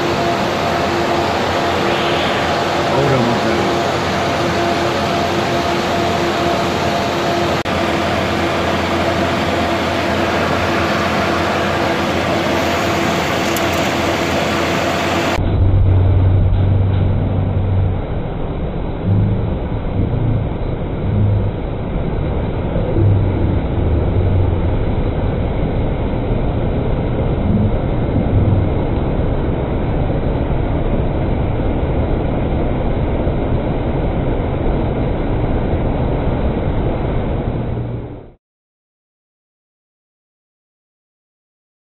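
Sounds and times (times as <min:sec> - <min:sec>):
airliner cockpit air and engines: 0:00.0 - 0:38.4
low bumps: 0:15.4 - 0:29.8.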